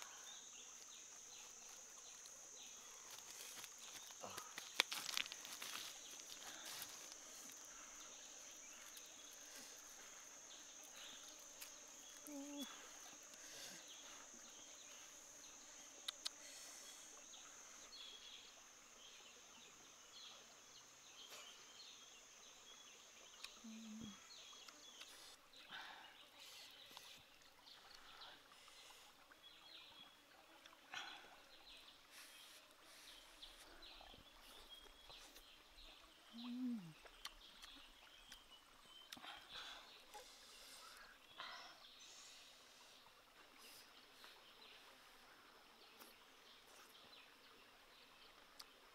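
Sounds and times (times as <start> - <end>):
low voice humming: 12.2 - 13.0, 23.6 - 24.2, 36.3 - 37.0.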